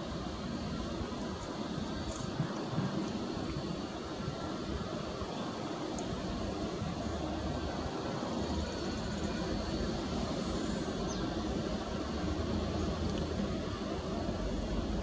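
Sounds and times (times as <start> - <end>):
jet engines rumbling with faint whine: 0.0 - 15.0.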